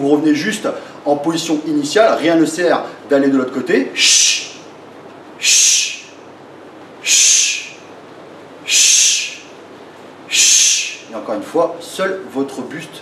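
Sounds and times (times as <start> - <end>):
man's sharp hissing exhalations: 4.0 - 4.6, 5.4 - 6.1, 7.0 - 7.8, 8.7 - 9.5, 10.3 - 11.1.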